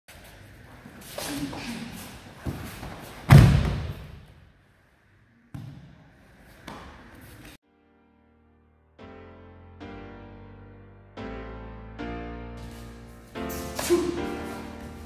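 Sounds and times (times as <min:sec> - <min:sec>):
body thudding onto mat: 0:02.5 - 0:04.2.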